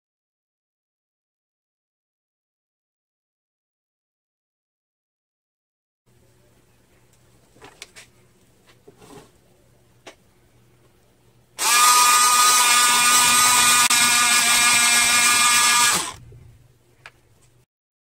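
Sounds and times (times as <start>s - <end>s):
electric pencil sharpener whine: 11.6s - 16.2s.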